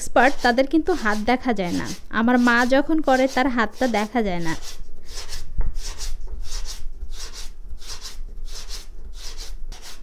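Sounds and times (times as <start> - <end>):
hand rolling dough on wooden board: 0.0 - 10.0.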